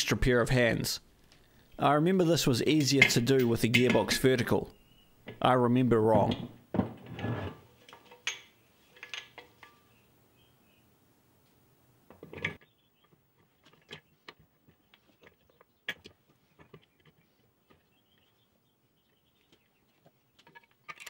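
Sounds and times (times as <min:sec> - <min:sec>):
metal parts clinking and knocking: 0:20.4 - 0:21.0.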